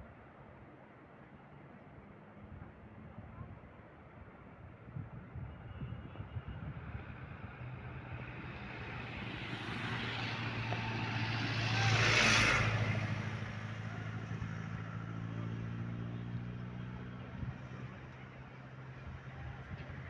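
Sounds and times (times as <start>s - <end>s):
low engine hum: 4.3s - 20.0s
vehicle driving past: 7.0s - 20.0s.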